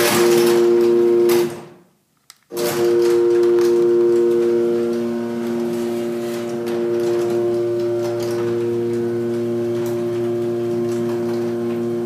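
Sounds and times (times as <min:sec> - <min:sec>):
garage door opener motor hum: 0:00.0 - 0:01.7, 0:02.5 - 0:12.0
click: 0:02.2 - 0:02.5.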